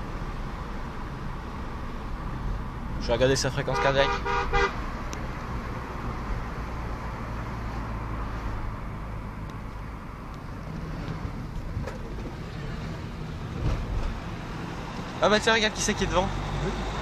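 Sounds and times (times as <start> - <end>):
car engine hum: 0.0 - 17.0.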